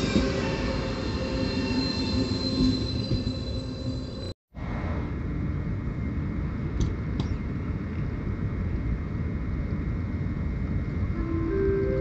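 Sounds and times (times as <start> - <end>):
railway station rumble: 0.0 - 12.0.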